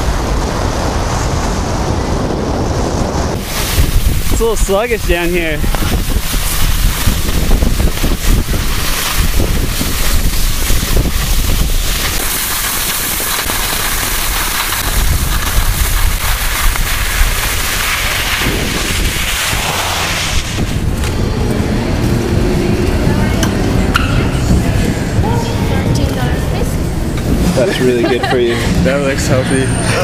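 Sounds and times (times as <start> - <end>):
wind noise on microphone: 0.0 - 30.0
skis hissing over snow: 3.3 - 20.9.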